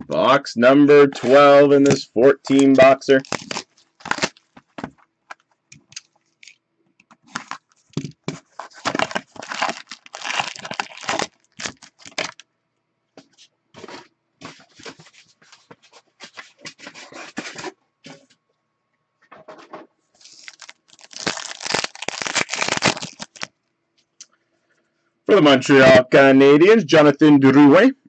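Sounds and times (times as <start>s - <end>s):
plastic shrink-wrap tearing: 2.5s - 4.5s, 7.3s - 7.8s, 8.6s - 12.4s, 20.2s - 23.5s
foil packs rustling: 2.5s - 4.8s, 7.3s - 12.4s, 20.2s - 23.5s.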